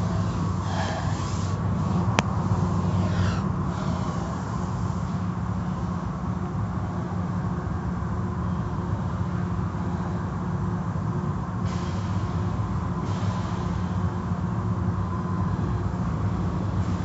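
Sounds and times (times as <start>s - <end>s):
spray hiss: 0.0s - 5.2s.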